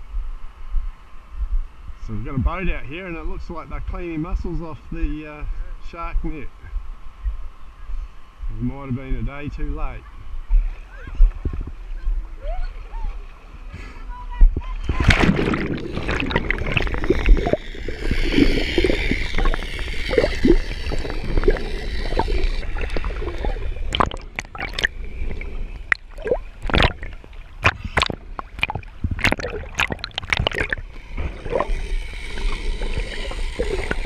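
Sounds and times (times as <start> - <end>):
muffled underwater water movement: 10.2 - 34.0.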